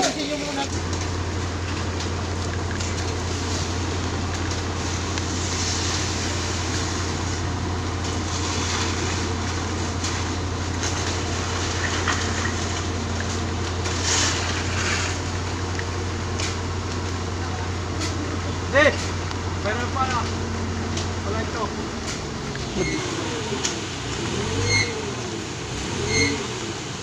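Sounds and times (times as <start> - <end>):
truck engine drone: 0.0 - 27.0.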